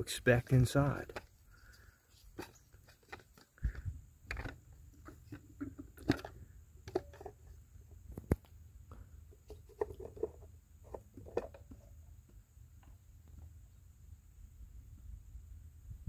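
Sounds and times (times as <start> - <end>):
plastic cap clicks and scrapes: 2.2 - 7.5, 9.4 - 11.8.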